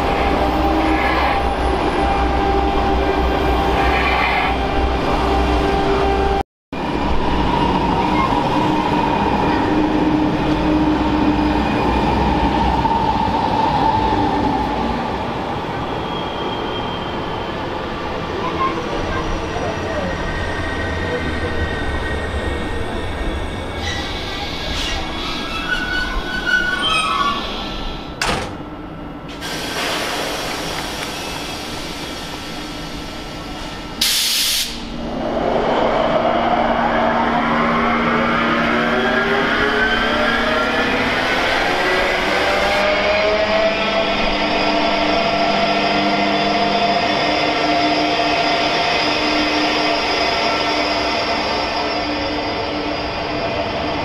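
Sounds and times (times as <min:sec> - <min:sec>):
air hiss: 0:34.0 - 0:34.9.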